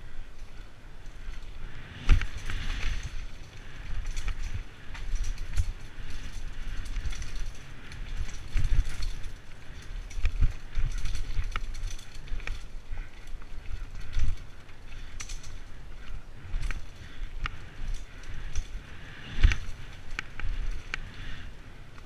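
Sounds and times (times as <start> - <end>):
bike tyres rolling over dirt: 0.0 - 22.0
bike rattling and knocking: 0.5 - 22.0.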